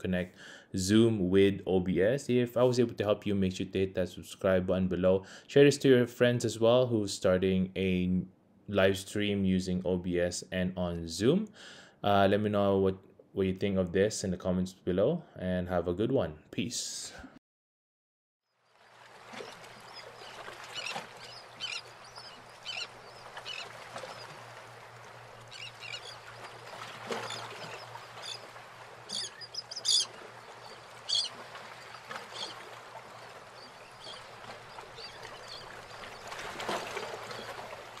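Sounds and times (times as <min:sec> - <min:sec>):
short bird calls: 0:29.1 - 0:32.6.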